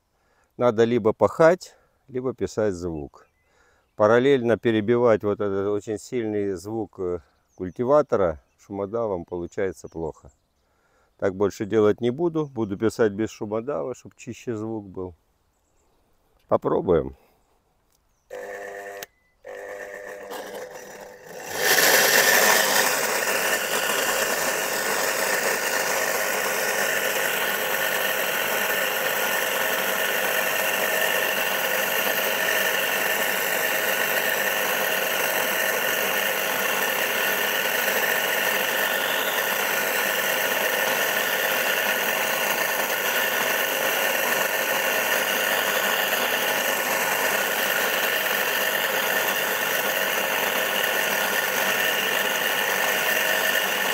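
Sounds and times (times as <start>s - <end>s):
electric cultivator motor whining: 18.3s - 53.9s.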